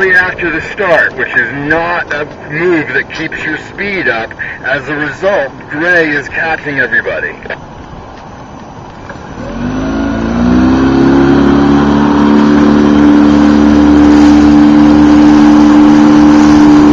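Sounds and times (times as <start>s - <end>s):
motorboat engine throttling up: 8.6s - 16.9s.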